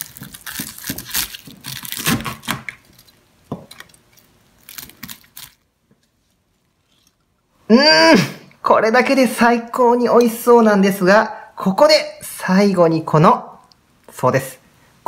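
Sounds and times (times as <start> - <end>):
crunching of crisp fried coating: 0.0 - 3.2, 3.8 - 5.6.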